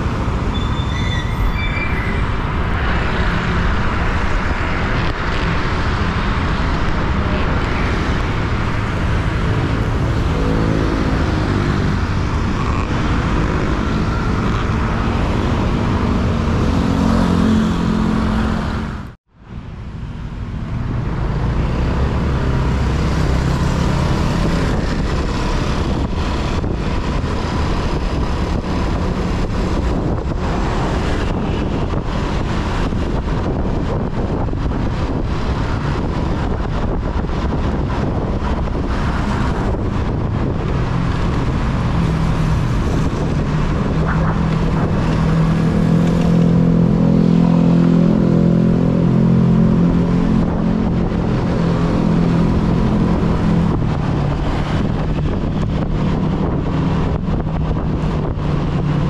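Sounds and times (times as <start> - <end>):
motorbike engine and road noise: 0.0 - 59.0
wind on microphone: 20.7 - 59.0
low engine hum: 20.8 - 59.0.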